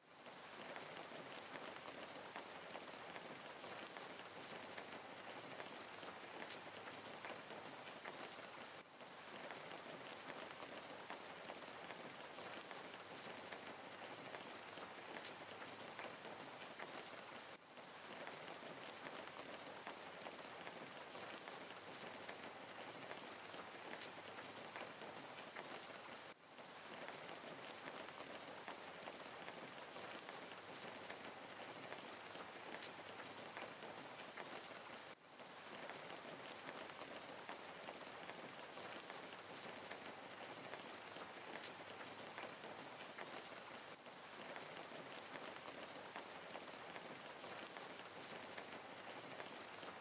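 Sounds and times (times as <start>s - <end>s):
steady hiss with crackling ticks: 0.0s - 50.0s.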